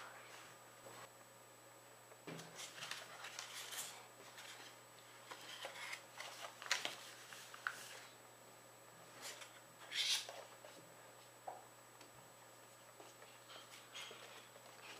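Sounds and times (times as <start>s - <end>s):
paper rustling and crinkling: 2.4s - 8.2s.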